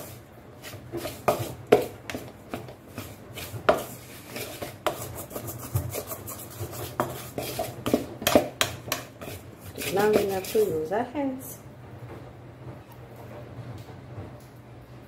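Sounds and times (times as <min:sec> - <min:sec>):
metal spoon stirring dough: 0:00.0 - 0:11.0.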